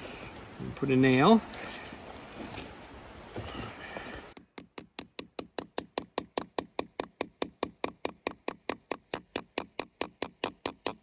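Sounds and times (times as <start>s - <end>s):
hammer tapping a nail: 4.4s - 11.0s.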